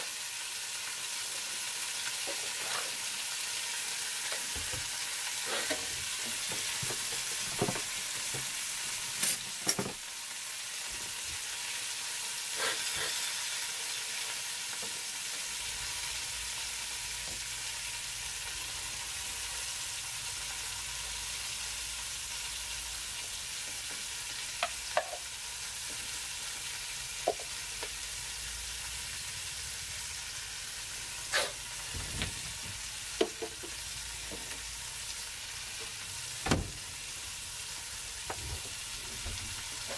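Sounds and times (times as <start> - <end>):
food sizzling in a frying pan: 0.0 - 39.9
spoon knocking on containers: 24.6 - 25.2, 27.3 - 27.5.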